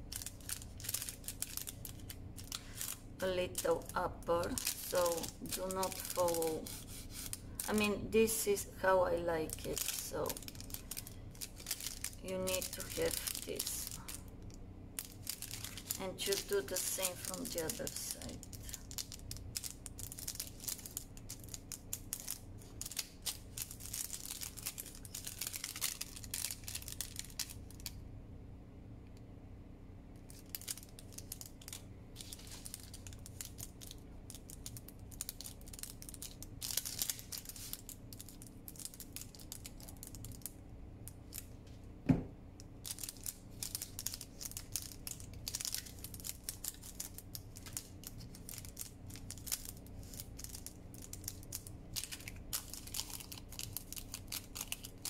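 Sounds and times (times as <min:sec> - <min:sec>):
paper crinkling and rustling: 0:00.0 - 0:08.5, 0:09.4 - 0:14.3, 0:15.0 - 0:27.9, 0:30.2 - 0:40.5, 0:42.8 - 0:55.0.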